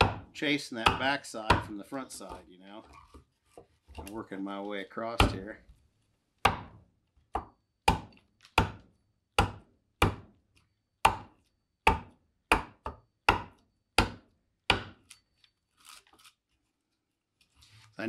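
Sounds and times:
adze chopping wood: 0.0s - 1.8s, 6.4s - 6.8s, 7.4s - 10.3s, 11.0s - 11.3s, 11.9s - 15.0s.

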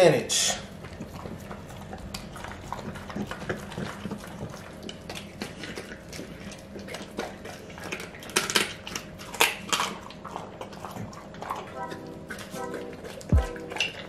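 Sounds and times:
dog chewing and licking: 0.4s - 14.0s
teeth clicking on metal bowl: 0.7s - 11.7s.

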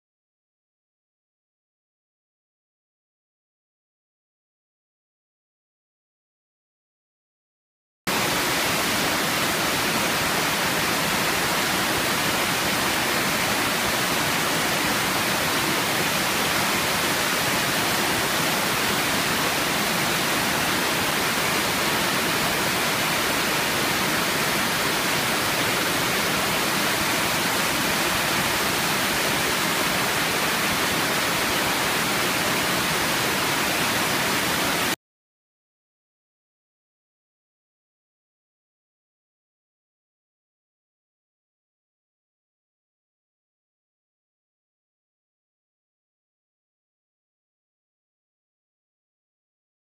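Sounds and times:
waterfall rushing: 8.1s - 35.0s.

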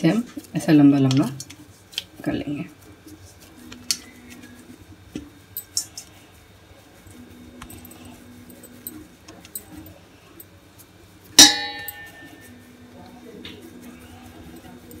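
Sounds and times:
bangles striking metal bowl: 11.4s - 12.4s
metal bangles clinking: 11.4s - 12.5s.

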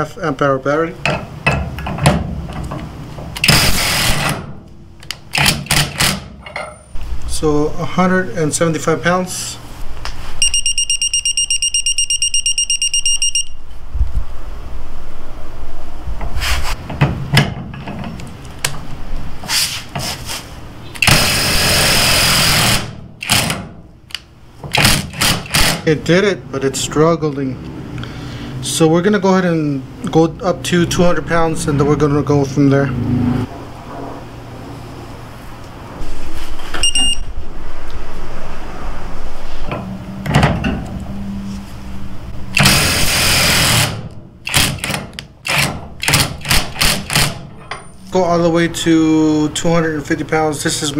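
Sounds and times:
impact wrench hammering: 3.4s - 6.8s, 24.7s - 25.9s, 42.6s - 47.7s.

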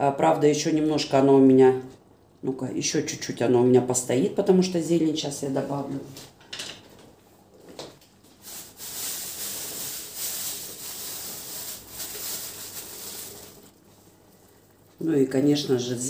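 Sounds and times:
plastic bag rustling and crinkling: 8.2s - 15.0s.

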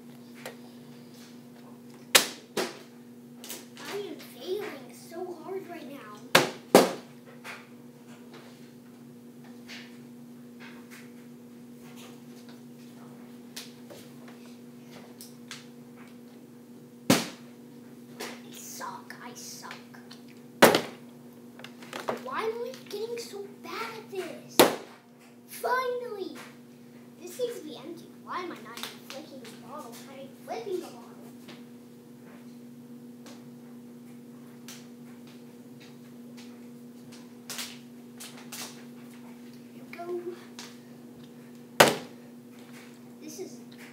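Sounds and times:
steady low hum: 0.0s - 43.9s
plastic bottle landing thud: 20.6s - 21.0s, 41.8s - 42.2s.

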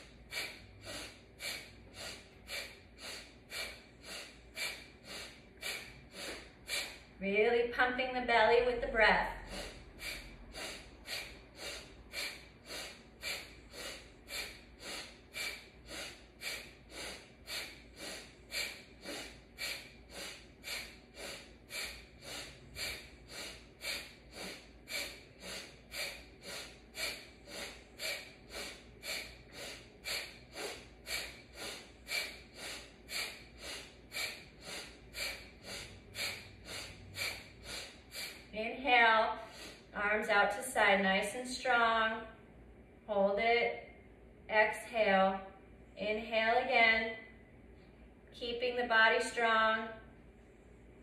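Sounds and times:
woman breathing forcefully: 0.0s - 7.2s, 8.6s - 40.0s.

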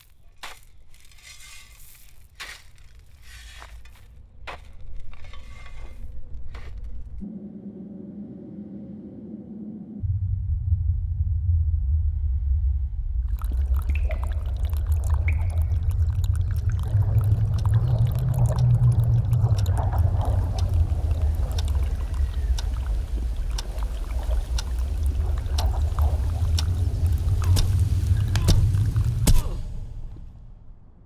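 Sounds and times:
wind rumbling: 7.2s - 31.0s
faint clicks: 15.2s - 29.2s.

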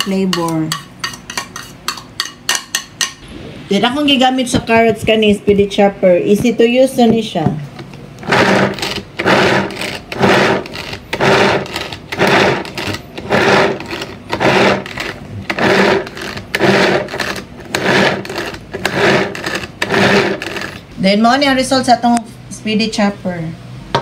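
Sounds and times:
pull-cord chopper whirring: 8.2s - 20.8s.

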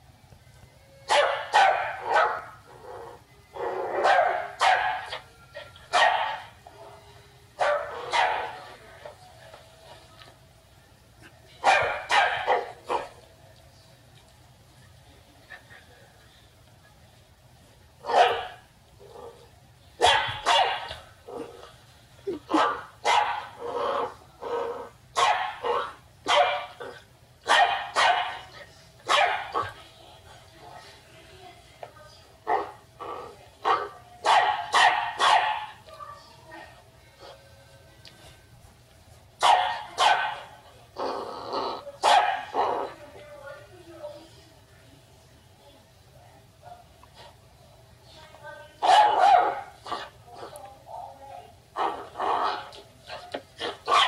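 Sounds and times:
dog barking: 1.1s - 2.6s, 3.7s - 5.2s, 5.9s - 6.5s, 7.6s - 8.7s, 11.6s - 13.2s, 18.0s - 18.6s, 20.0s - 21.5s, 22.5s - 24.2s, 25.2s - 29.8s, 33.6s - 35.8s, 39.4s - 40.6s, 42.0s - 42.9s, 48.8s - 50.5s, 51.8s - 54.0s.

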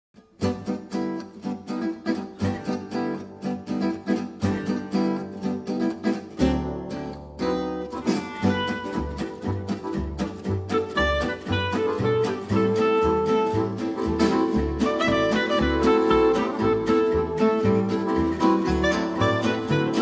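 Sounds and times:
acoustic guitars strumming: 0.2s - 20.0s
deep bass: 7.4s - 20.0s.

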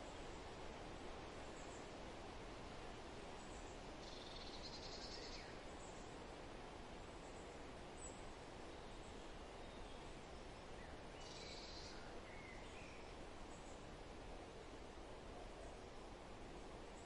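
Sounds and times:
faint outdoor background noise: 0.0s - 17.0s
faint bird chirps: 3.4s - 6.1s, 10.8s - 13.8s.

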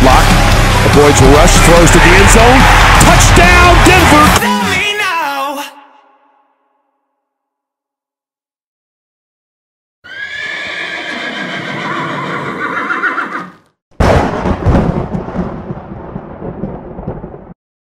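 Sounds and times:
horse whinny: 10.0s - 13.7s
loud rumbling boom: 14.0s - 17.6s.

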